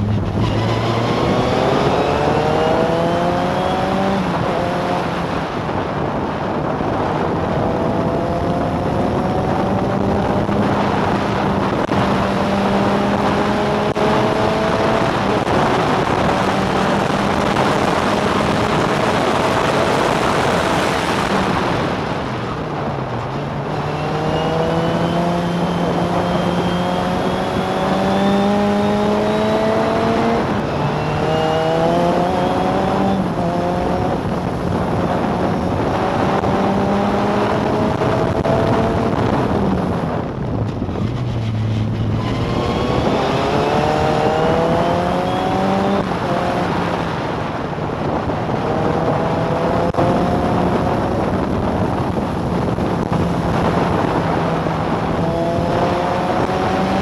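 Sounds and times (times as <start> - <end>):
racing car engine upshifting: 0.0 - 5.4, 23.1 - 57.0.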